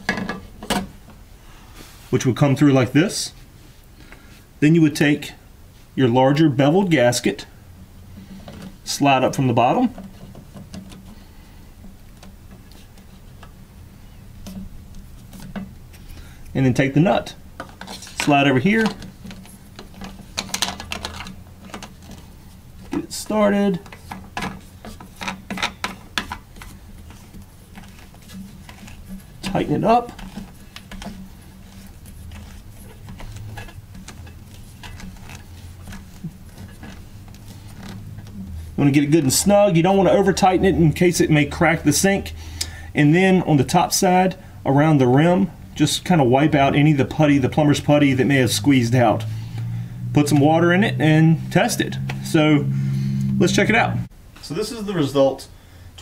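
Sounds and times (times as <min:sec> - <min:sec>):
low steady hum: 0:00.0 - 0:56.0
low hum: 0:47.7 - 0:54.1.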